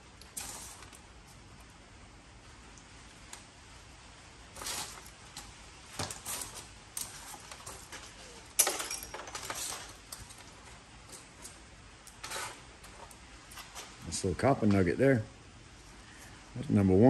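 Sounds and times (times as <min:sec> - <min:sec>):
metal scrap pieces clinking: 0:08.5 - 0:10.0.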